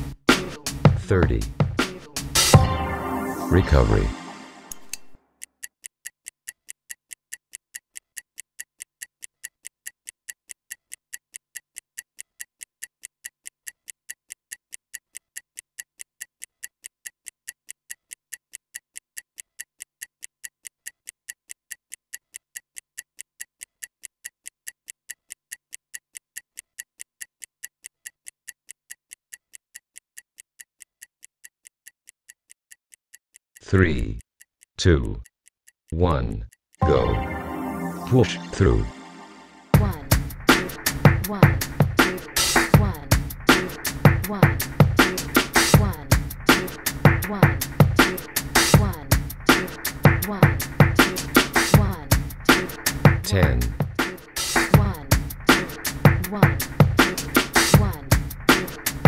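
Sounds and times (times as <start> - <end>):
stopwatch ticking: 4.9 - 36.8, 39.8 - 59.0.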